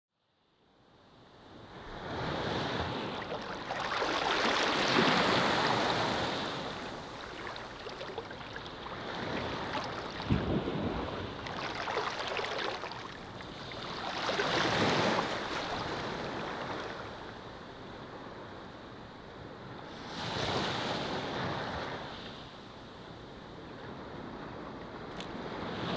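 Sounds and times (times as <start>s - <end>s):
ocean waves breaking: 1.8s - 17.4s.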